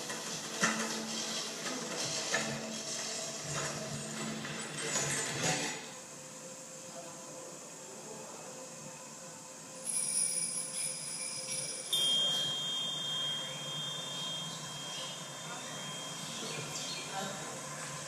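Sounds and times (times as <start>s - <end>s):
small metal cymbals ringing: 9.8s - 17.4s.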